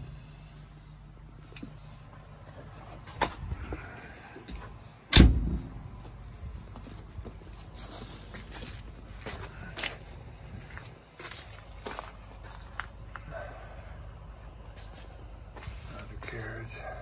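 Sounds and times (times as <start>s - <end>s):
steel door slamming shut: 5.1s - 5.8s.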